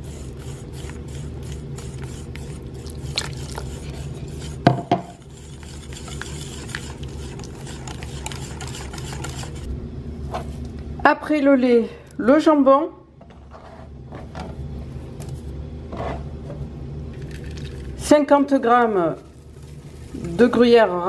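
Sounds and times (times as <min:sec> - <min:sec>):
whisk beating batter in bowl: 0:00.0 - 0:09.7.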